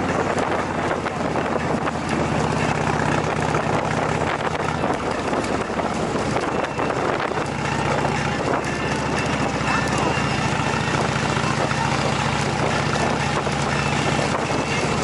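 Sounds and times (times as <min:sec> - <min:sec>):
motorcycle engine running: 0:00.0 - 0:15.0
wind noise on microphone: 0:00.0 - 0:15.0.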